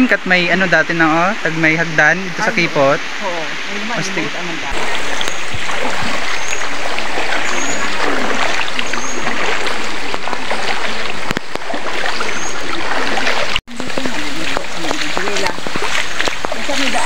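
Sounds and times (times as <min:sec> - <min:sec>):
stream running over rocks: 0:00.0 - 0:17.0
feet splashing in water: 0:04.7 - 0:17.0.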